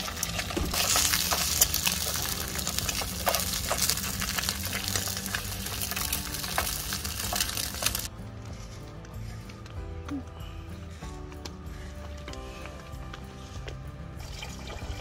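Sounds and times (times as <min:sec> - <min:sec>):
egg sizzling in oil: 0:00.0 - 0:08.1, 0:14.2 - 0:15.0.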